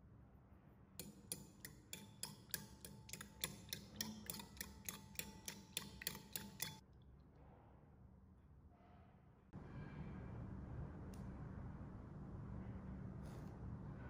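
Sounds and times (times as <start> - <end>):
fork beating eggs in bowl: 1.0 - 6.8.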